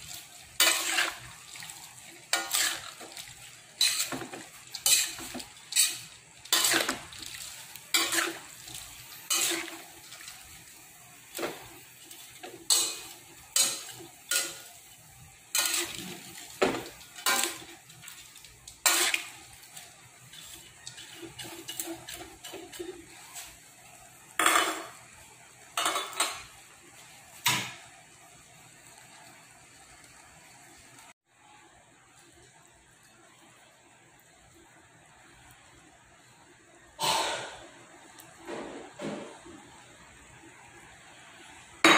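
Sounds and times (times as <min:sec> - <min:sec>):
metal spatula scraping a wok: 0:00.0 - 0:23.6.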